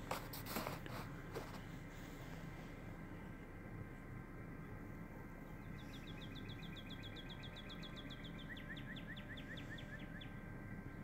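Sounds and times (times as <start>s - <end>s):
low background noise: 0.0s - 11.0s
songbird trilling: 5.6s - 10.4s.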